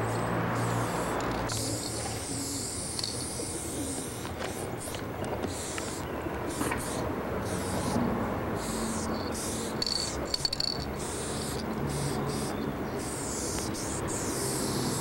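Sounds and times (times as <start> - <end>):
spray can hissing: 1.0 - 7.9, 8.6 - 12.5.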